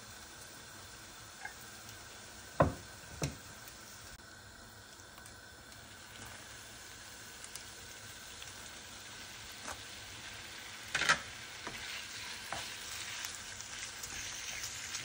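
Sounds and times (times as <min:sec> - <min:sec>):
meat thudding into pan: 0:02.6 - 0:03.4.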